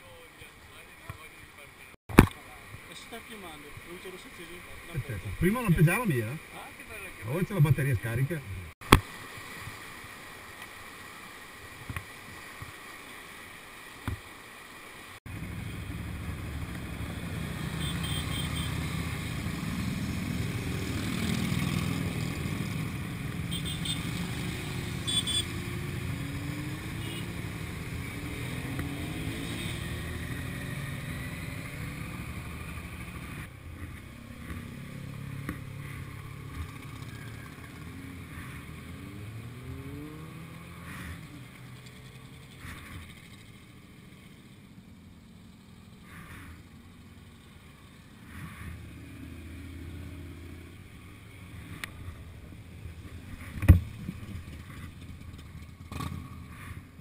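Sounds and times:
motorcycle engines accelerating: 15.3s - 57.0s.

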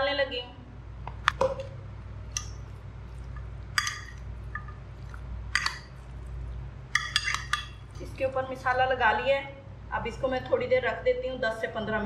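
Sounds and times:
low steady hum: 0.0s - 12.0s
metal spoon clinking on glass dish: 3.8s - 4.7s, 5.6s - 5.9s, 6.9s - 8.0s.

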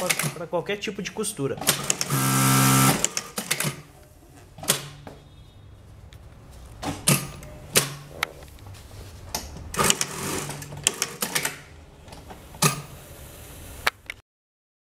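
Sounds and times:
sewing machine clicks and clacks: 0.0s - 0.4s, 1.6s - 2.1s, 3.0s - 3.8s, 9.7s - 11.6s.

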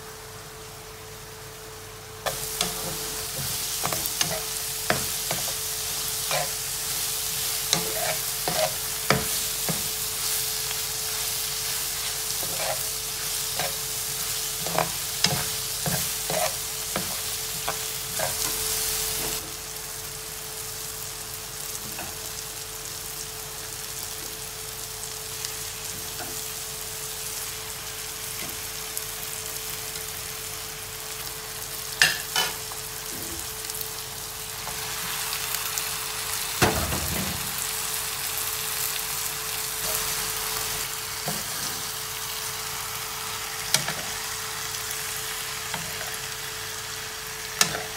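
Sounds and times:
vegetables sizzling in a frying pan: 0.0s - 47.9s
metal spoon scraping a pan: 6.2s - 6.6s, 7.7s - 9.9s, 12.3s - 13.8s, 14.6s - 18.6s.

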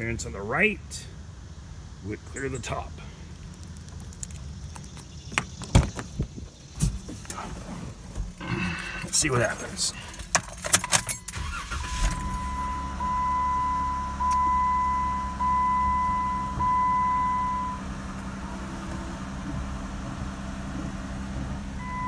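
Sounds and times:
dashboard warning chime: 10.9s - 17.9s, 21.8s - 22.0s
car engine idling: 11.3s - 22.0s.

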